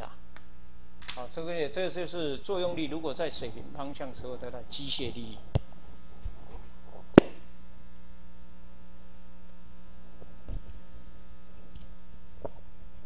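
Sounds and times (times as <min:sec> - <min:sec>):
electrical hum: 0:00.0 - 0:13.0
sharp microphone click: 0:07.1 - 0:07.5.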